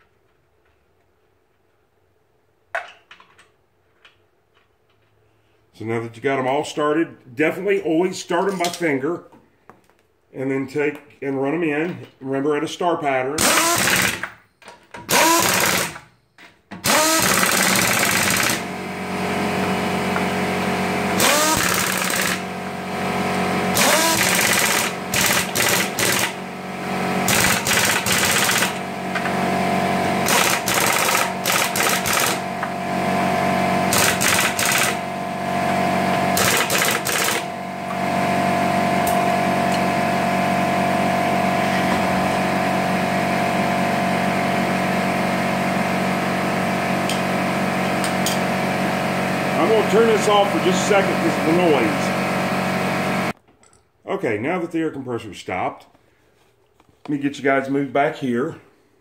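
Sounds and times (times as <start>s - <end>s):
air compressor running: 13.4s - 14.4s, 15.0s - 16.1s, 16.8s - 53.4s
impact wrench hammering: 13.4s - 14.4s, 15.0s - 16.0s, 16.7s - 18.7s, 21.2s - 22.5s, 23.3s - 26.4s, 27.2s - 29.4s, 30.2s - 32.8s, 33.9s - 35.0s, 36.4s - 38.0s, 47.9s - 48.5s.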